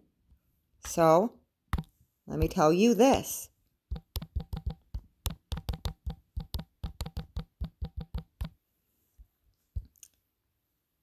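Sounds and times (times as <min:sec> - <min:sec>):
phone keyboard key clicks: 0:03.9 - 0:08.5.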